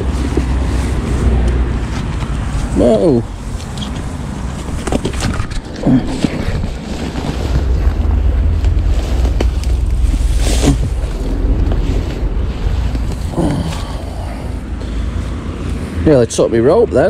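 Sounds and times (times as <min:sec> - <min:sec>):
wind buffeting microphone: 0:00.0 - 0:16.0
footsteps through long grass: 0:06.3 - 0:14.0.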